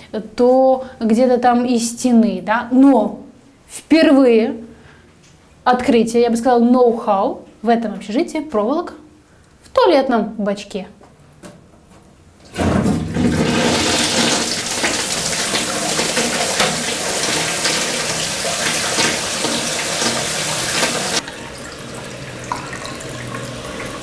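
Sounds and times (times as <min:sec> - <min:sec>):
quiet running water: 0:12.6 - 0:24.0
toilet flush water rushing: 0:12.6 - 0:24.0.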